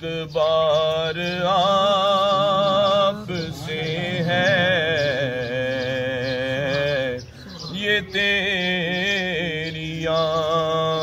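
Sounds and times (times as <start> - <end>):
man singing ornamented devotional song: 0.0 - 11.0.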